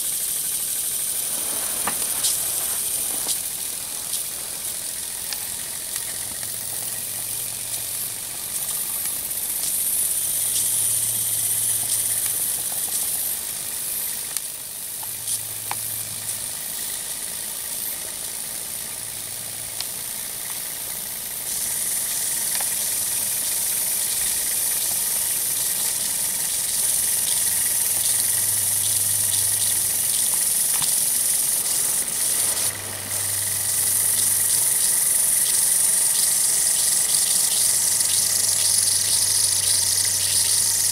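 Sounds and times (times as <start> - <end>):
steam hissing from jets: 0.0 - 40.9
small clicks: 4.1 - 13.2, 19.8 - 40.9.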